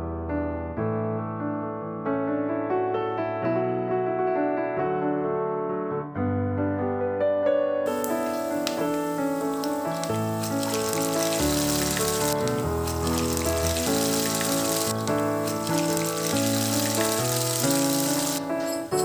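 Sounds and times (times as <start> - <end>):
seeds sizzling in hot oil: 7.9 - 18.5
background music: 7.9 - 19.0.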